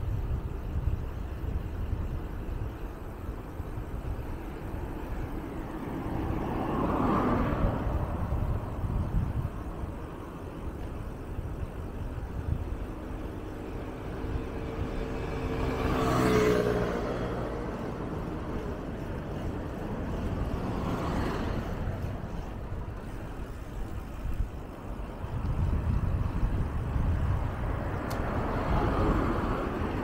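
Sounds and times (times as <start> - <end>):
wind rumble on microphone: 0.0 - 30.0
motor scooter passing: 2.9 - 30.0
faint vehicle passing: 4.6 - 9.9, 12.4 - 30.0.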